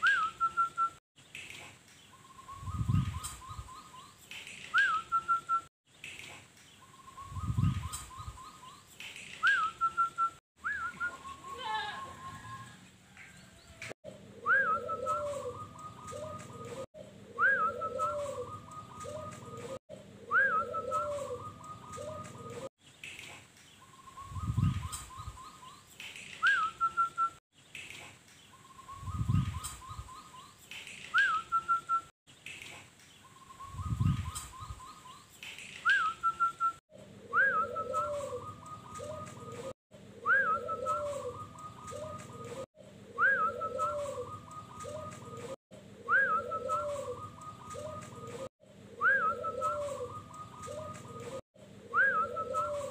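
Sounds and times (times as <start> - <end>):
dove singing whistled trills: 0.0 - 1.0, 2.1 - 5.7, 6.8 - 22.7, 23.8 - 27.4, 28.5 - 32.1, 33.2 - 52.9
low cooing notes: 14.4 - 22.7, 43.2 - 51.4.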